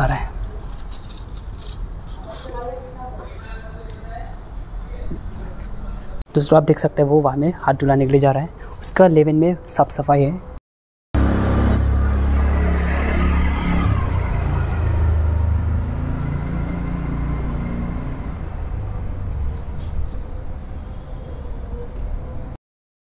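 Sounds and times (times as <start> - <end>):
vehicle engine rumble: 11.2 - 22.6.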